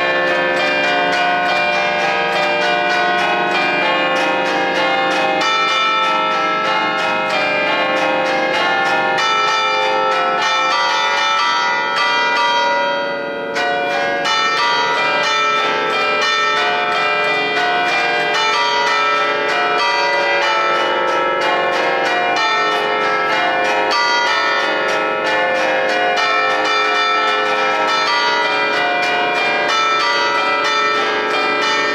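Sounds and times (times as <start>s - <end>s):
church bells ringing: 0.0s - 31.9s.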